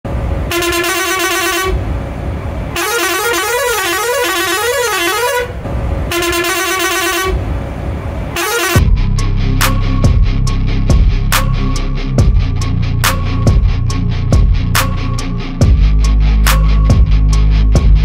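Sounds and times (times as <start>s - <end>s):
bus air horn blasts: 0.4s - 1.9s, 2.7s - 7.5s, 8.3s - 9.0s
low rumble: 8.8s - 18.0s.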